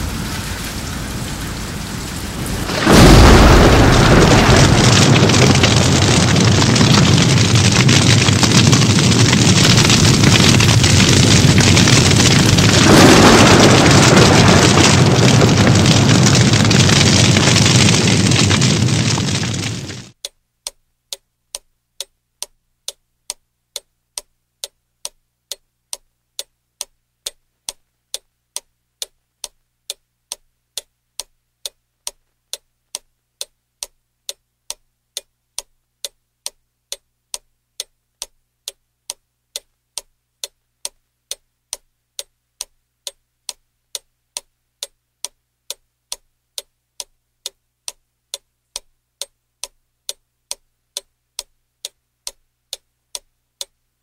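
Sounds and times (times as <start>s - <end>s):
ticking clock timer: 20.2s - 53.8s.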